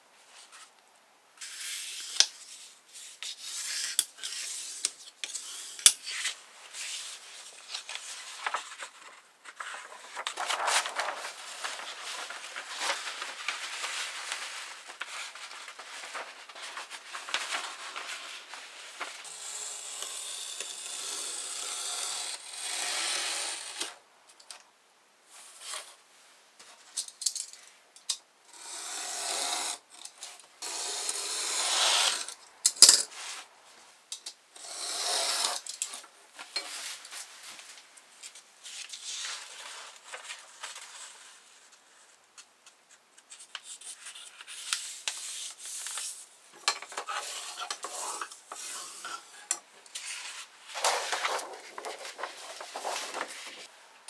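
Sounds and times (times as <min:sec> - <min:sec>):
paper rustling: 0:05.6 - 0:19.3, 0:36.3 - 0:53.7
knife scraping through paper: 0:47.0 - 0:53.7.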